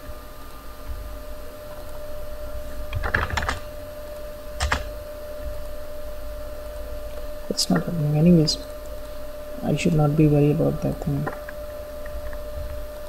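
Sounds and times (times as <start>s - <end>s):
steady electrical hum: 0.0s - 13.0s
computer keyboard clicks: 2.9s - 3.6s, 4.6s - 4.9s.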